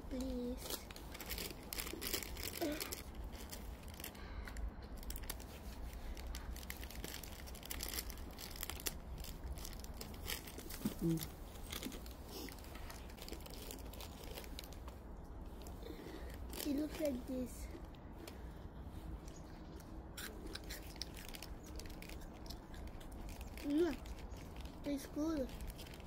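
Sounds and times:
steady low rumble: 0.0s - 26.0s
plastic wrapper crinkling: 0.1s - 14.9s, 20.8s - 24.8s, 25.5s - 26.0s.

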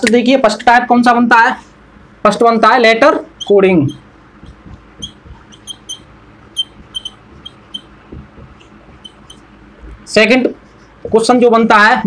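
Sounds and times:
marker squeaking on a whiteboard: 3.1s - 11.8s.

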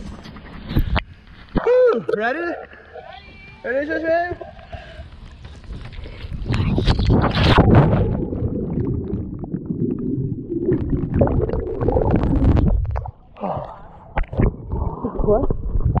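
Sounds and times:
muffled underwater rumbling and gurgling: 6.1s - 16.0s
water bubbles: 6.4s - 16.0s.

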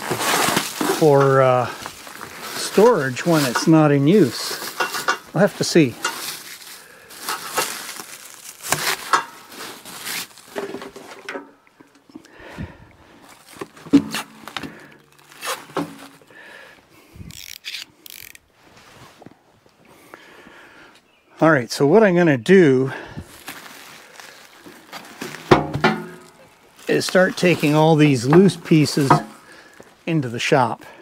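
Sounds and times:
plastic wrapping crinkling: 0.0s - 11.2s, 13.3s - 16.3s, 23.2s - 30.0s
cardboard packing handled: 0.0s - 11.3s, 13.3s - 16.3s, 23.2s - 29.9s.

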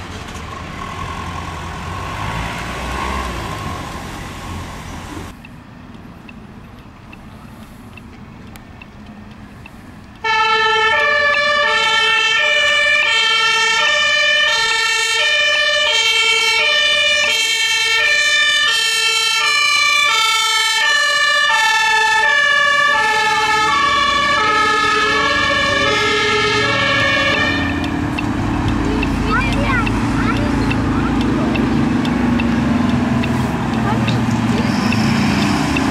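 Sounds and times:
road and engine noise: 0.0s - 35.9s
truck diesel engine: 0.0s - 35.9s
two-tone siren: 10.2s - 31.8s.

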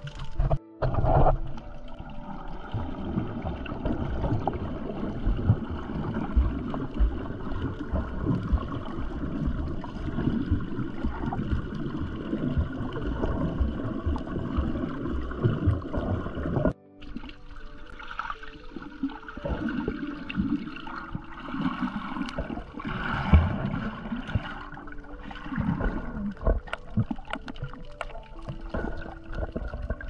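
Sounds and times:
water churning against housing: 2.7s - 16.8s.

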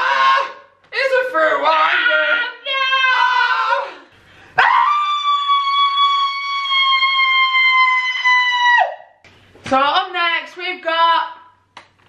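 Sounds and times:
long high wailing cry: 4.6s - 8.9s.

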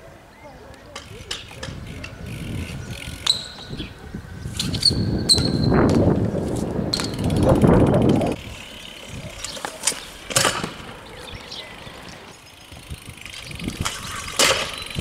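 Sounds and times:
scooter wheels on paving: 0.1s - 15.0s
bike tyres rolling on stone paving: 4.5s - 15.0s.

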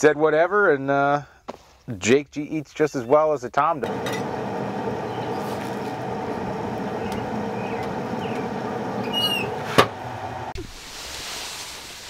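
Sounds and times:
grill lid hinge squeaking: 7.8s - 9.9s.

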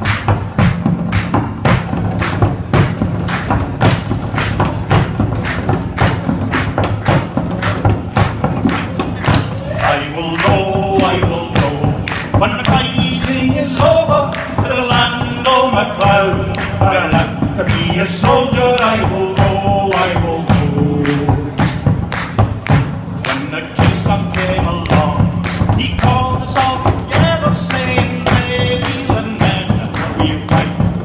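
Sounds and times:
frame drum beaten in steady rhythm: 0.0s - 31.0s
man singing: 9.2s - 21.8s, 23.2s - 31.0s.

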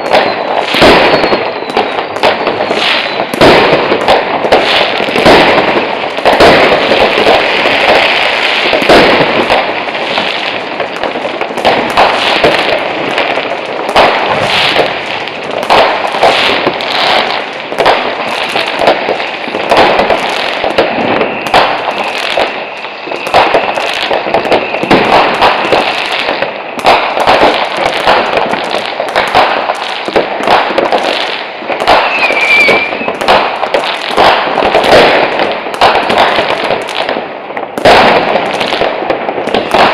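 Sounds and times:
thin steady whistle: 0.0s - 2.1s, 21.2s - 24.9s, 32.0s - 33.2s
fireworks bursts and bangs: 0.0s - 39.9s
fireworks crackling: 0.0s - 39.9s
short wavering whistle: 32.0s - 33.1s.

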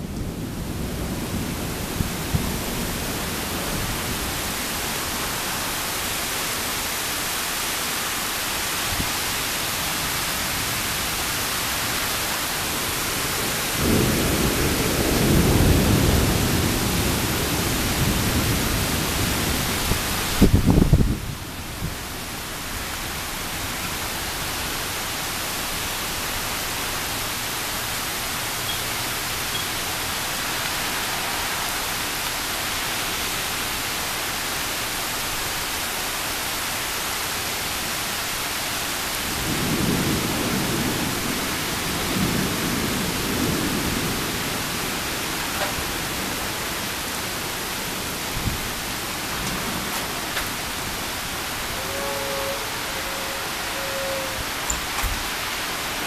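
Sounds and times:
heavy rain: 0.0s - 56.0s
thunder rumbling: 12.7s - 22.1s, 39.2s - 55.3s.

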